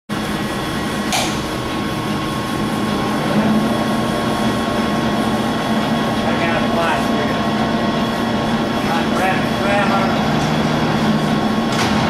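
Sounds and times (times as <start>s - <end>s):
lathe mechanical hum: 0.1s - 12.0s.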